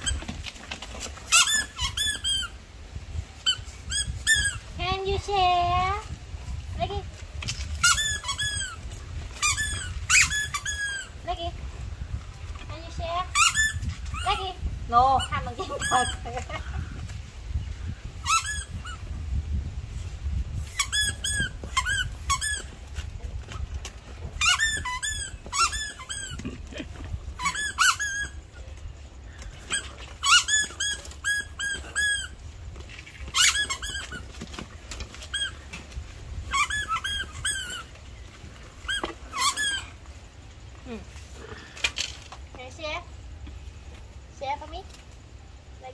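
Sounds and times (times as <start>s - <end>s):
rubber toy squeaking: 0.0s - 2.6s, 3.4s - 4.8s, 7.4s - 11.6s, 12.6s - 17.0s, 18.1s - 19.3s, 20.5s - 40.1s.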